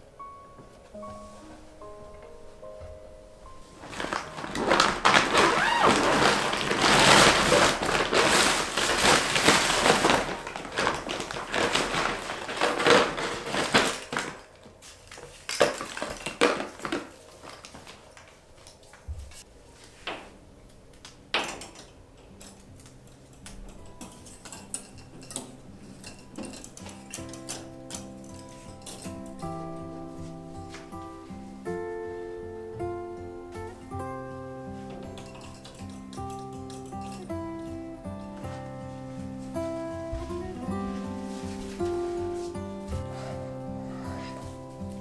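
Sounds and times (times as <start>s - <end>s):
zipper being pulled open: 3.8s - 9.0s.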